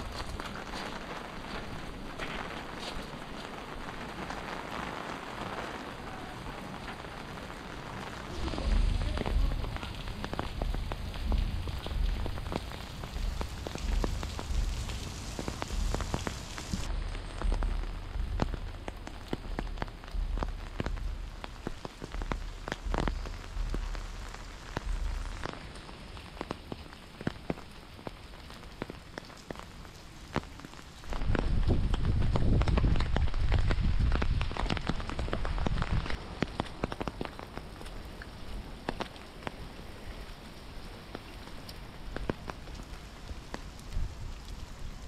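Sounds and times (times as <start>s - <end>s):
raindrops tapping close by: 0.0s - 45.0s
steady rain falling: 0.0s - 45.0s
low rumble: 8.3s - 26.2s.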